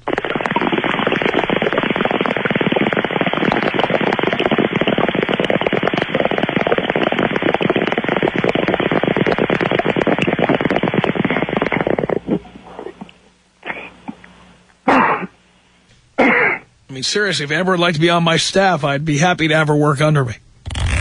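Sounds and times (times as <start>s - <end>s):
water bubbling in a bong: 0.0s - 13.2s.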